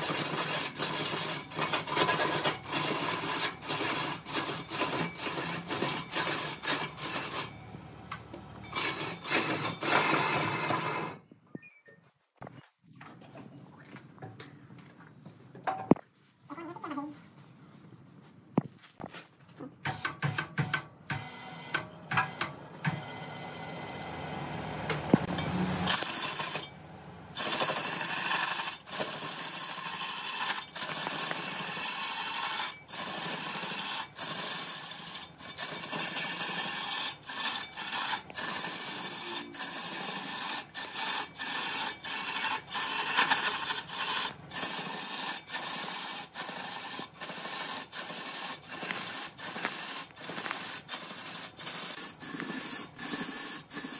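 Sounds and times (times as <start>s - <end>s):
lathe tool scraping spinning wood: 0.0s - 7.8s, 8.5s - 11.2s, 25.2s - 26.8s, 27.4s - 53.9s.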